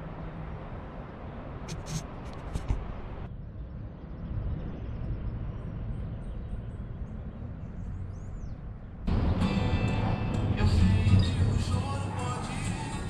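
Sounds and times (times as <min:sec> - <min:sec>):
steady low rumble: 0:00.0 - 0:13.0
music: 0:09.1 - 0:13.0.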